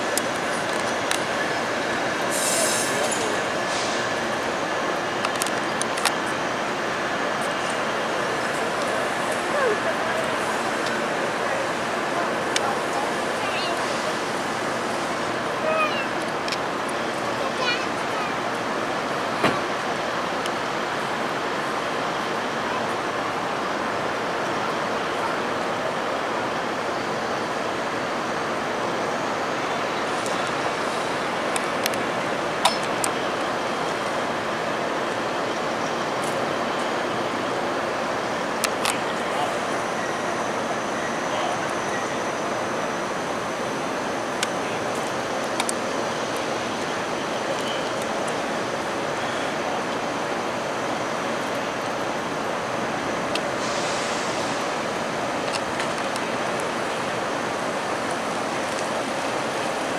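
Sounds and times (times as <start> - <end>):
rail yard rushing noise: 0.0 - 59.9
urban background hiss: 0.0 - 59.9
short hiss: 2.3 - 4.2, 53.5 - 54.6.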